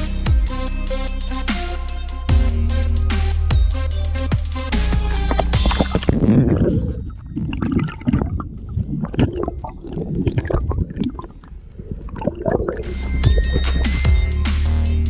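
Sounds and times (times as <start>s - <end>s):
electronic music: 0.0s - 15.0s
muffled underwater gurgling: 5.3s - 14.0s.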